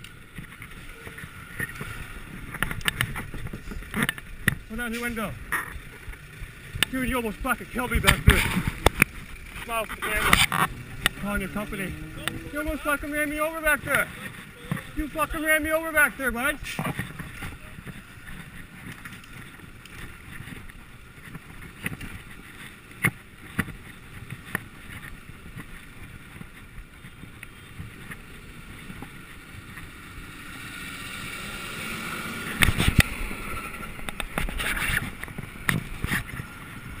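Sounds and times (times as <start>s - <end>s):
road rumble: 0.0s - 37.0s.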